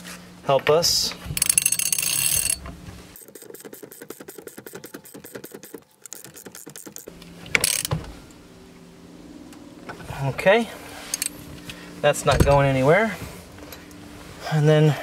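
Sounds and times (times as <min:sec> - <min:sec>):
ratchet rasp: 0:01.4 - 0:02.6, 0:03.2 - 0:07.9
ratchet wrench clicking: 0:01.4 - 0:02.6, 0:03.2 - 0:07.9.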